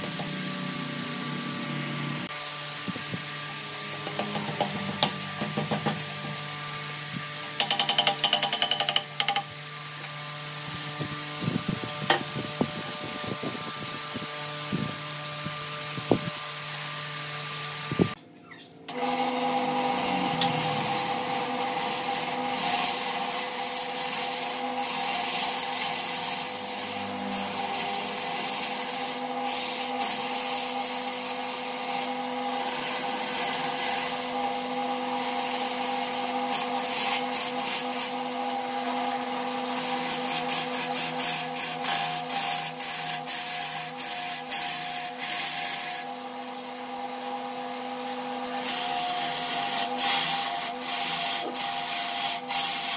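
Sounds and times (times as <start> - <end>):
lathe motor humming: 0.0 - 14.7, 18.9 - 52.9
turning tool scraping wood: 3.4 - 10.2, 19.0 - 47.4, 48.3 - 52.9.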